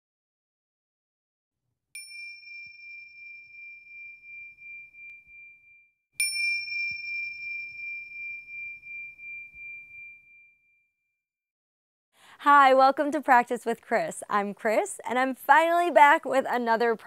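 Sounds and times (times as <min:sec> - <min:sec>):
high bell-like chime: 0:02.0 - 0:10.8.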